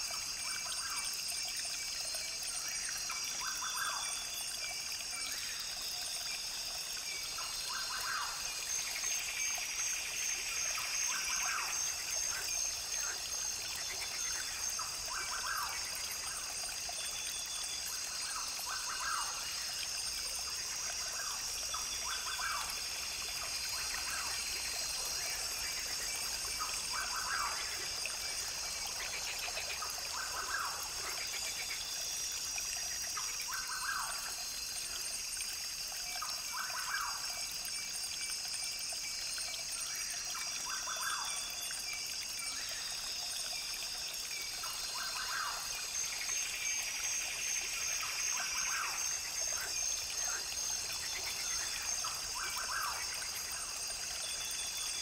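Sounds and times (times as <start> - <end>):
brook trickling: 0.0 - 55.0.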